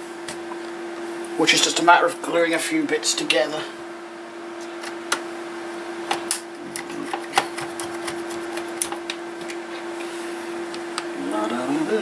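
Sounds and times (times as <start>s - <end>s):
steady low hum: 0.0s - 12.0s
screwdriver clicking and tapping: 7.1s - 9.6s.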